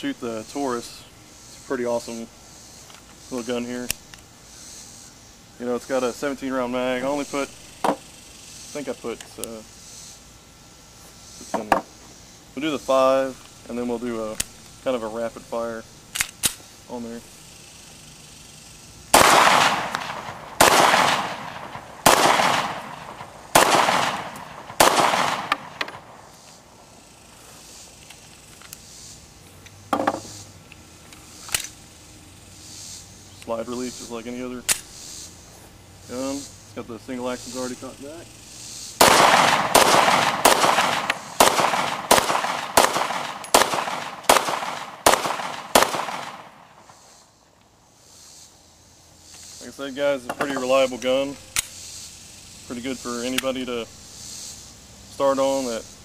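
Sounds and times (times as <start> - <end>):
pistol shots: 19.1 - 26.3, 39.0 - 46.8.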